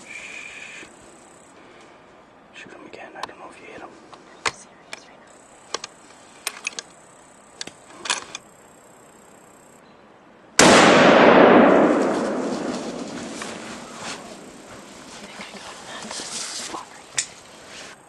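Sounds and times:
loud gunshot booming: 10.6s - 14.6s.

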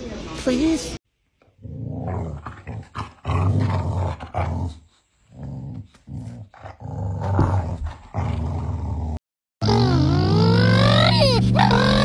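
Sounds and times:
dog play-growling: 1.6s - 9.2s.

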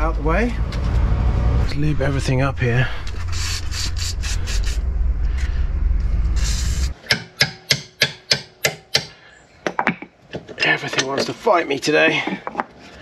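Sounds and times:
hand tool scraping metal hub: 3.0s - 4.8s.

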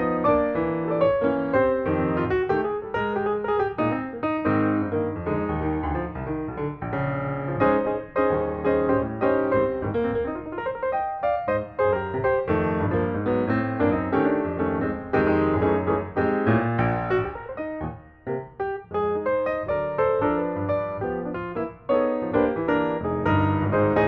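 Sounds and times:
piano music: 0.0s - 24.0s.

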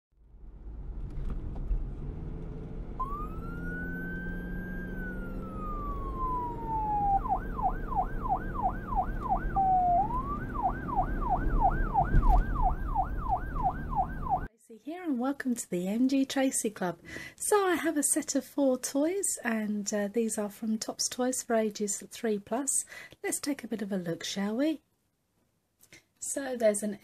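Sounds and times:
steady low rumble: 0.2s - 3.3s
siren wailing and yelping: 3.0s - 14.5s.

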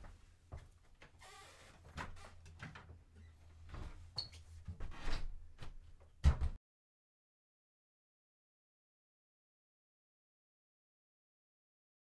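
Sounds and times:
door shutting with a thud: 6.2s - 6.6s.

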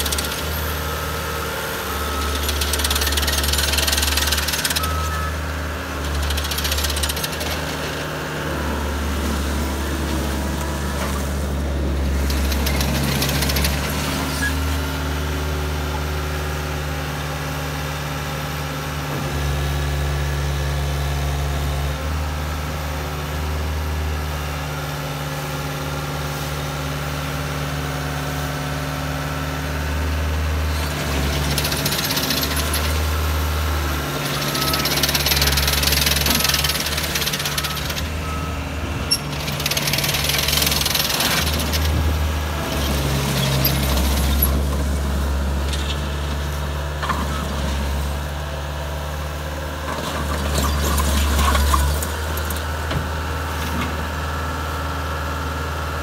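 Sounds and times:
diesel engine running under load: 0.0s - 56.0s.

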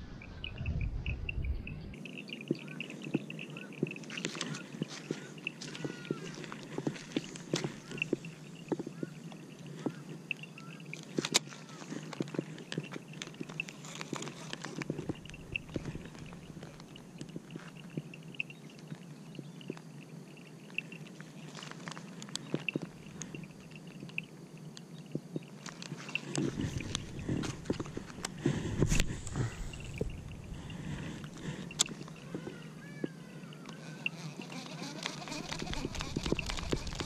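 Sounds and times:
faint high chirp: 0.0s - 6.5s, 15.0s - 21.5s
steady low hum: 0.0s - 11.0s, 14.7s - 21.4s, 22.0s - 34.4s
fishing rod and reel handling: 9.8s - 17.8s, 25.6s - 30.6s.

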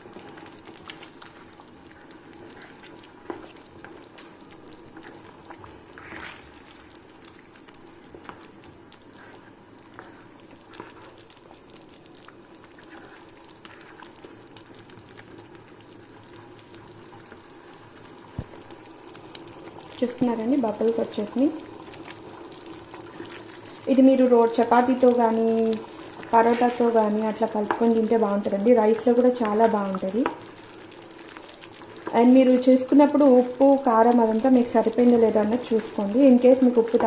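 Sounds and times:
ladle stirring: 0.0s - 11.7s
gravy bubbling in a pan: 0.0s - 37.0s.

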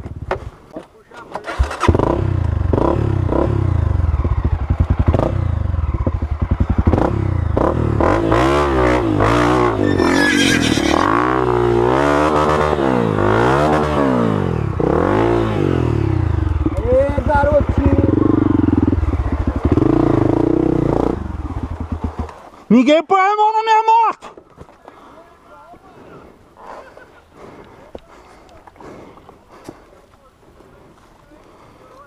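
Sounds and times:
dirt bike engine revving: 1.5s - 22.3s.

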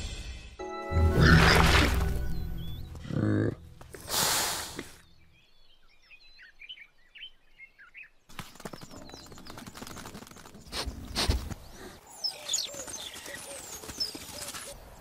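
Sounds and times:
small birds chirping: 2.2s - 15.0s.

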